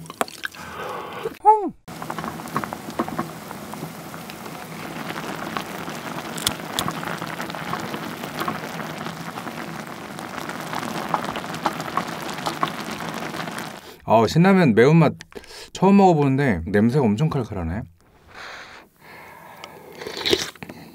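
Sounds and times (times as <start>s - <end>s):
broth boiling hard in a pot: 1.9s - 14.0s.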